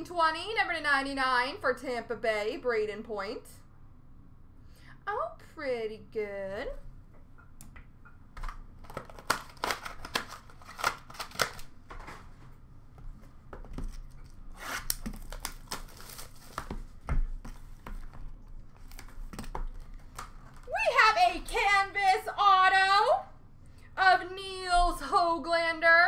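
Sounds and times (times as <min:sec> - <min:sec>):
cardboard and plastic crinkling: 0:08.4 - 0:12.5, 0:13.6 - 0:20.7.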